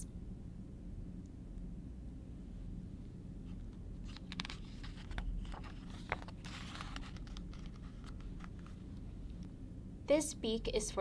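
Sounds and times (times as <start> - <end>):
book page rustling: 3.5 - 8.9.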